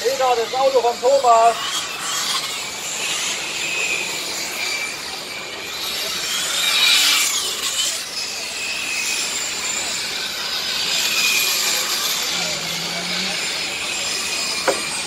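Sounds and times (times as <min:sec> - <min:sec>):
model race cars whining: 0:00.0 - 0:15.0.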